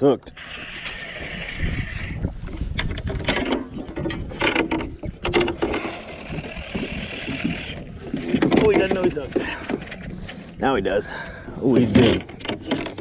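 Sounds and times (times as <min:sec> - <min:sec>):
trolling motor mount clicks and clunks: 0:02.2 - 0:10.6, 0:11.7 - 0:13.0.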